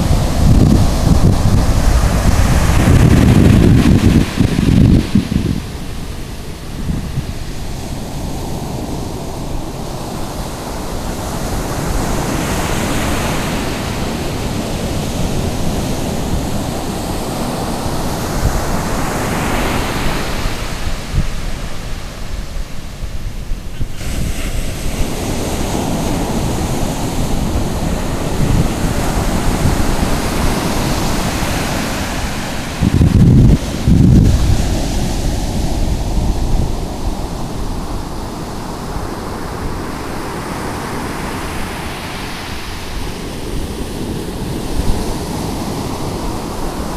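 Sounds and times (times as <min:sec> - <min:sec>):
ocean surf breaking: 0:00.0 - 0:46.9
wind buffeting microphone: 0:00.0 - 0:46.9.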